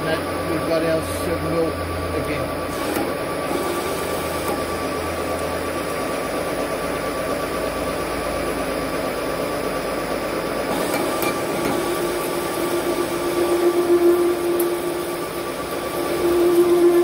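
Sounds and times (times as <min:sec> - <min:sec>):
metal lathe running: 0:00.0 - 0:17.0
coolant spraying: 0:00.2 - 0:07.9, 0:10.6 - 0:17.0
faint high whine: 0:11.4 - 0:17.0.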